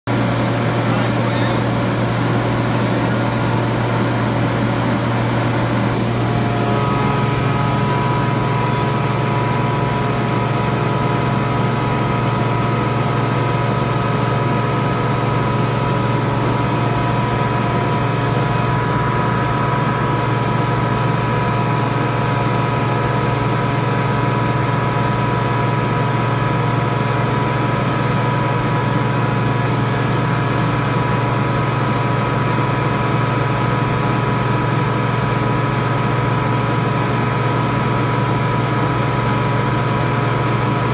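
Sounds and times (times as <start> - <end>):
air compressor droning: 0.1 - 25.3
compressor whine: 0.1 - 40.9.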